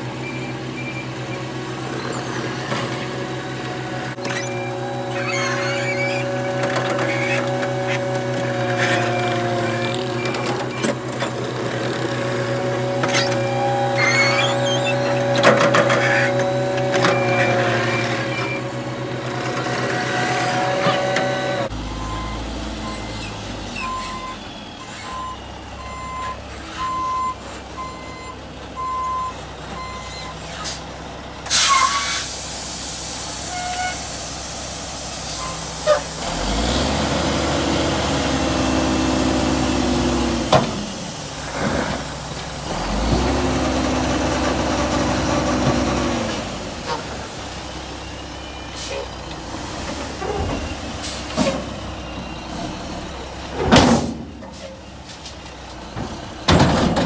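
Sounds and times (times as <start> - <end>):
diesel engine running: 0.0 - 57.0
reversing alarm beeping: 20.5 - 30.4
air brakes hissing: 30.3 - 30.9, 31.5 - 36.2, 48.6 - 49.2, 50.2 - 52.0.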